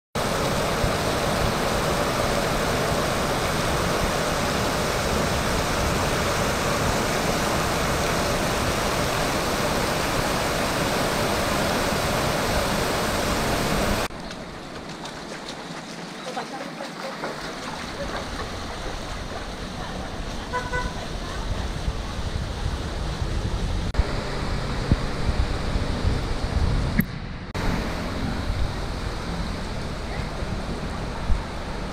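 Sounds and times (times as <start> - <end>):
heavy rain pouring: 0.2 - 24.0.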